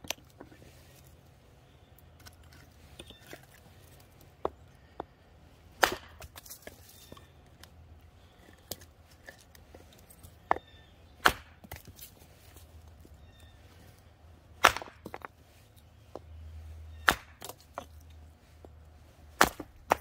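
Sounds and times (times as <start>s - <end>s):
hatchet chopping wood: 5.8s - 6.8s, 11.2s - 12.0s, 14.6s - 15.3s, 16.9s - 17.9s, 19.4s - 20.0s
split wood knocking: 14.6s - 15.3s, 17.0s - 17.9s, 19.4s - 20.0s.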